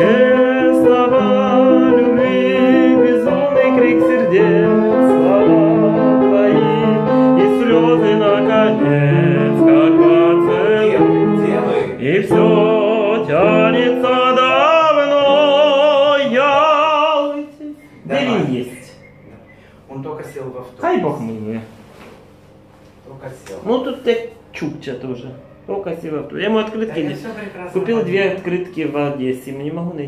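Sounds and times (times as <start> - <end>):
operatic singing: 0.0 - 17.5
piano accompaniment: 0.0 - 19.5.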